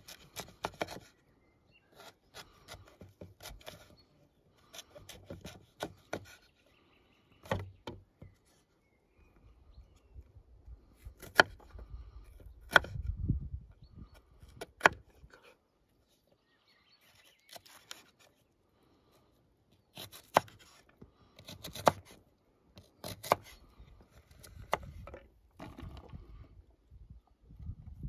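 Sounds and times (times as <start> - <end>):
knife chopping on wooden board: 11.2 - 11.7, 23.0 - 23.5.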